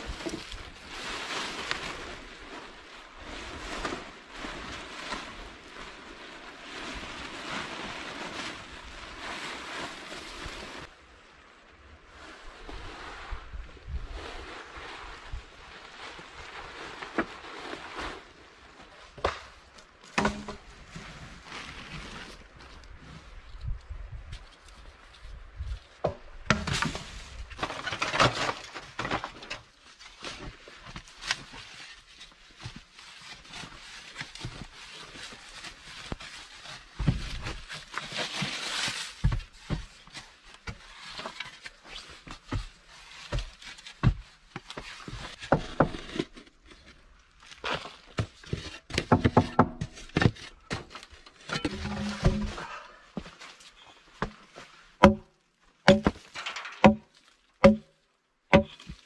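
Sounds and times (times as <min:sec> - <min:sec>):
wooden poles knocking: 0:20.2 - 0:20.6, 0:48.9 - 0:50.9, 0:51.5 - 0:52.7, 0:55.0 - 0:57.9, 0:58.5 - 0:58.9
shovel digging into dry earth: 0:51.5 - 0:52.7, 0:55.9 - 0:57.8.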